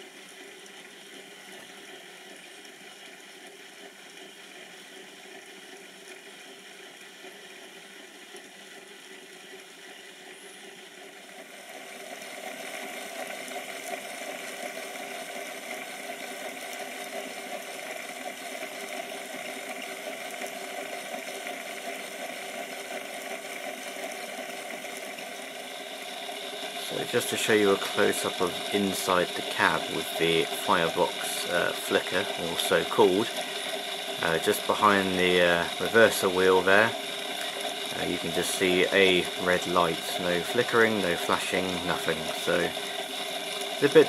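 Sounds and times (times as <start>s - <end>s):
model train motor whirring: 25.8s - 44.0s.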